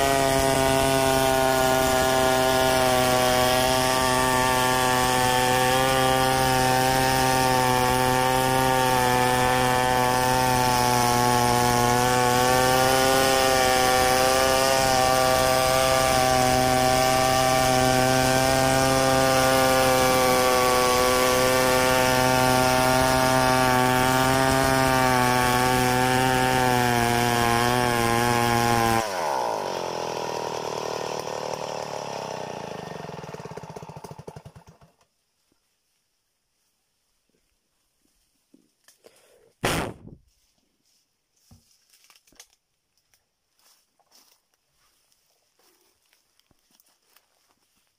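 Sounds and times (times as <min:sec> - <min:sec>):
chainsaw cutting log: 0:00.0 - 0:35.1, 0:39.6 - 0:40.2.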